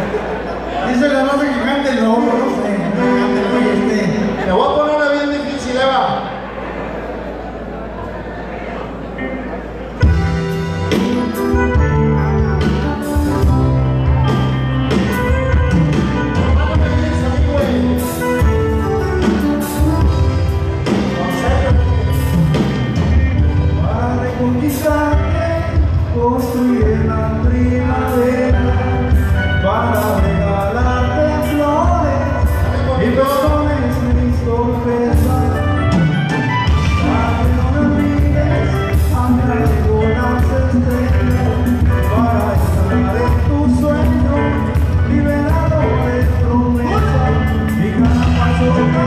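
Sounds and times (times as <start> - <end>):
live band playing: 0.0 - 49.0
man singing: 0.9 - 6.1, 15.1 - 19.4, 20.8 - 49.0.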